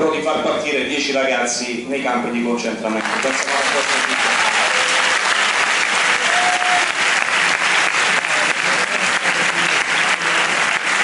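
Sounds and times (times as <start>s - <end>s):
crowd applauding: 3.0s - 11.0s.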